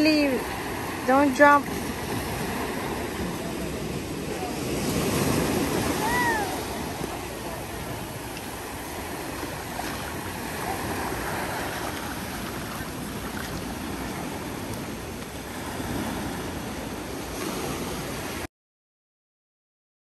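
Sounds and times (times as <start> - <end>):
small waves on sandy beach: 0.0 - 18.5.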